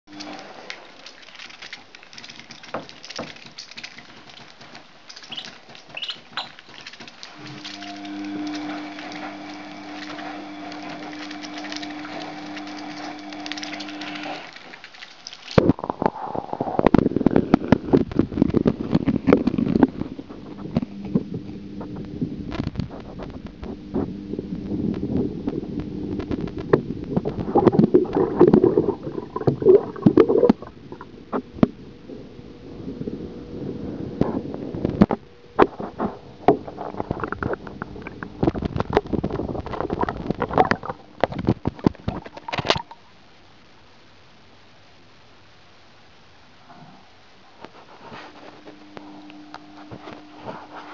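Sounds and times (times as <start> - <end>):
water sloshing and splashing: 0.1 - 16.2, 27.2 - 31.8, 35.6 - 43.0
faint steady hiss: 0.1 - 50.9
muffled underwater knocks and gurgles: 25.0 - 31.8, 34.2 - 42.9.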